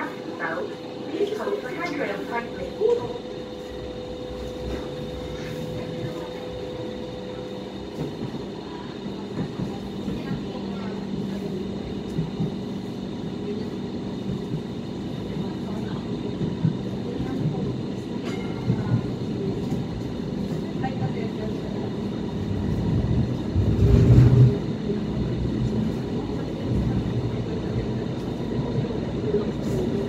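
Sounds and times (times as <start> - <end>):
train wheels rumbling on rail: 0.0 - 30.0.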